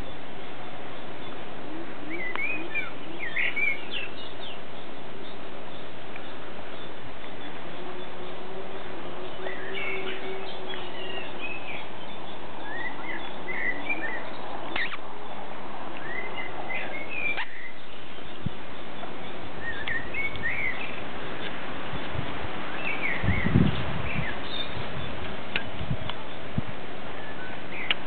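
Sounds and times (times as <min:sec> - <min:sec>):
puppies squeaking and whimpering: 0:14.8 - 0:15.0.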